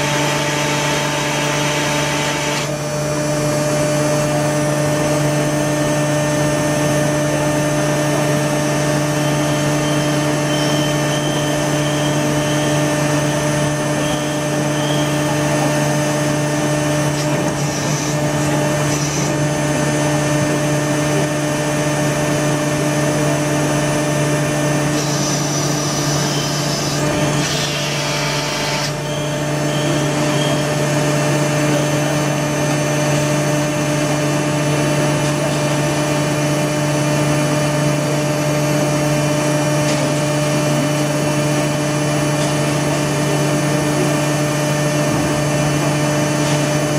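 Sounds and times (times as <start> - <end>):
moulding machine mechanical hum: 0.0 - 46.9.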